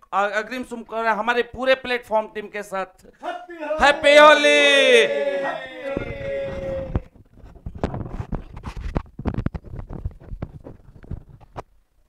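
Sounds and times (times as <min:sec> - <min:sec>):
man's voice: 0:03.2 - 0:07.1
microphone handling noise: 0:06.0 - 0:11.7.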